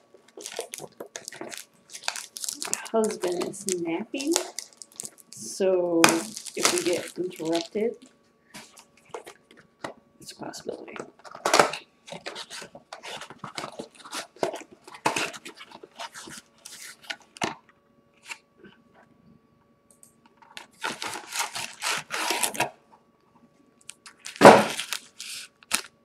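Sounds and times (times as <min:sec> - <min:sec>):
card packaging rustling and crinkling: 0:00.2 - 0:08.0, 0:08.6 - 0:10.0, 0:10.7 - 0:17.6, 0:20.4 - 0:22.7, 0:23.9 - 0:26.0.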